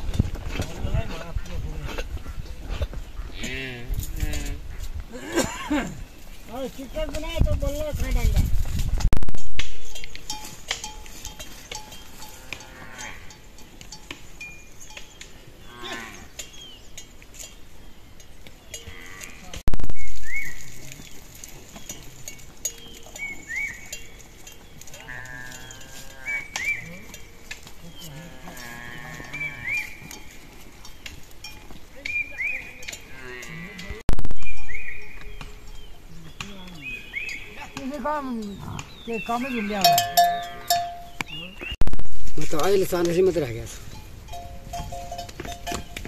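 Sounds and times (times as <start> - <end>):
animal bells clinking: 5.4 - 41.6, 42.6 - 46.0
livestock calling: 15.6 - 16.6, 18.7 - 30.4, 34.6 - 41.6
livestock bleating: 18.9 - 19.6, 25.0 - 26.5, 28.0 - 29.8, 33.1 - 34.1.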